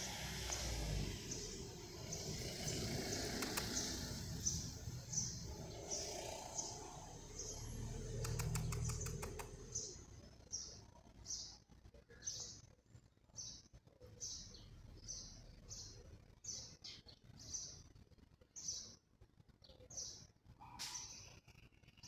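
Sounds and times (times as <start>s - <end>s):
bird chirping: 0.0s - 22.0s
faint clicks: 3.3s - 3.8s, 8.2s - 9.6s.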